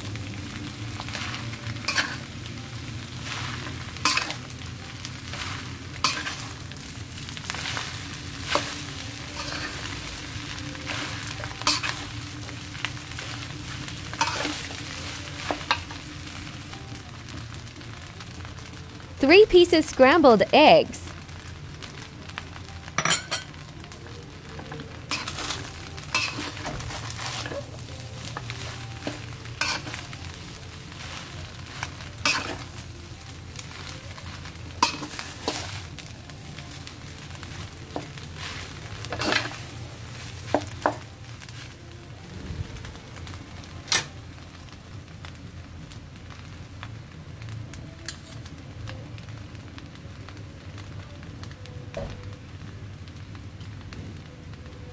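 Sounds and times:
rice sizzling in a pan: 0.0 - 54.9
metal spatula clinking and scraping: 1.8 - 2.3, 4.0 - 4.4, 6.0 - 6.5, 10.9 - 12.0, 14.2 - 14.7, 23.0 - 23.5, 25.1 - 27.8, 28.6 - 30.1, 32.2 - 32.7, 34.8 - 35.8, 39.1 - 39.6.

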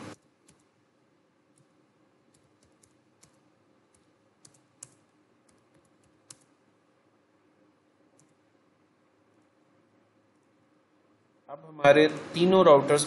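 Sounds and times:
computer keyboard typing: 0.2 - 0.7, 2.3 - 6.5, 8.2 - 8.4.

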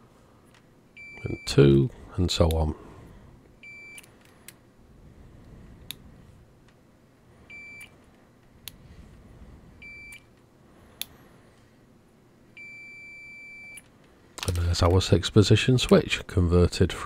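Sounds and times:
multimeter high beeps: 1.0 - 1.7, 3.6 - 4.1, 7.5 - 8.0, 9.8 - 10.3, 12.6 - 13.8.

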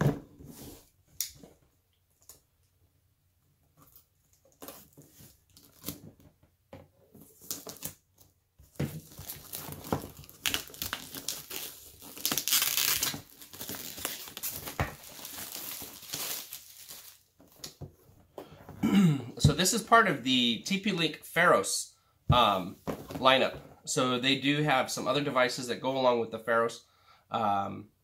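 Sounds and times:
plastic wrap crinkling and tearing: 3.8 - 6.0, 8.9 - 17.6.

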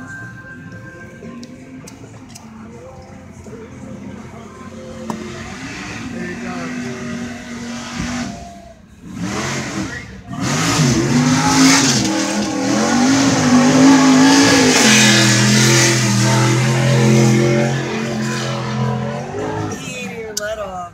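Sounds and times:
truck engine revving hard: 4.9 - 19.9.

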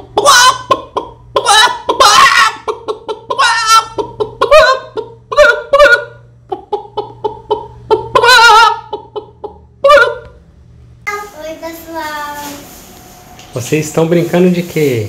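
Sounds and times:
hen clucking and squawking: 0.0 - 10.4.

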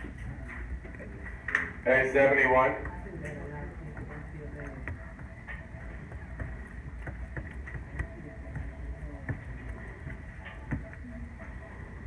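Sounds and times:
dauber tapping on paper: 2.8 - 11.1.

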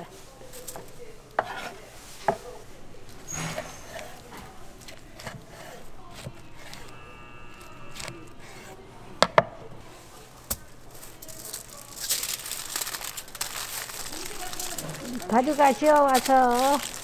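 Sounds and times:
aluminium foil crinkling: 0.0 - 8.8, 9.8 - 17.0
plastic bag crinkling: 9.9 - 17.0.

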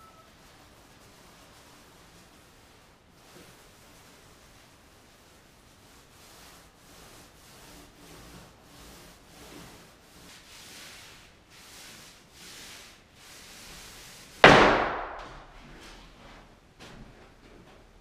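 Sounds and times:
paint roller swishing on wall: 0.0 - 17.9
loud crash of object falling: 14.4 - 15.4.

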